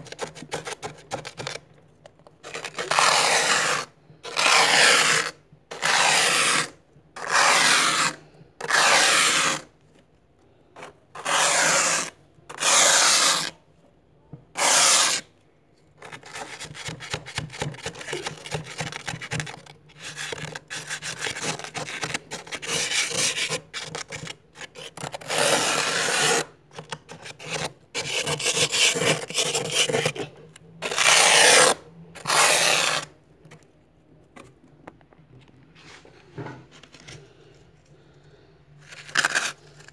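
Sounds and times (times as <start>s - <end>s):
plastic card scraping frost: 0.0s - 1.6s, 2.2s - 9.7s, 10.7s - 13.6s, 14.6s - 15.3s, 16.0s - 33.6s, 38.8s - 39.9s.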